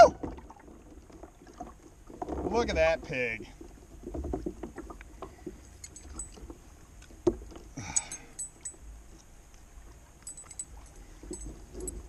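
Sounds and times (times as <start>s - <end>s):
light metallic jingling: 5.8s - 6.5s, 7.8s - 8.9s, 10.2s - 12.0s.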